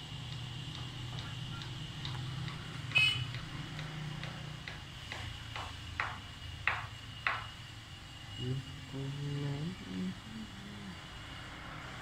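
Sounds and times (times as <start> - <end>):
low steady hum: 7.7 - 11.5.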